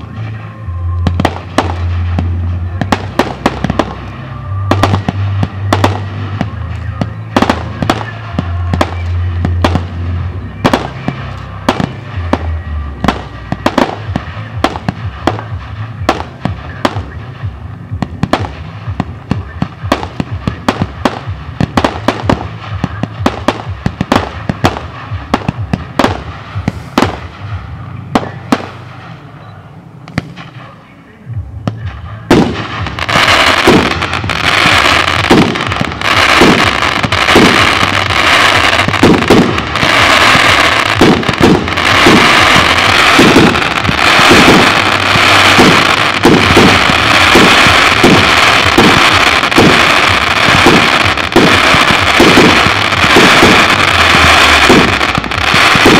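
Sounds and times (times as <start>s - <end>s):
sharp bangs of firework shells: 1.1s - 10.0s, 10.6s - 27.6s, 31.7s - 55.9s
dense firework hiss: 26.1s - 27.7s.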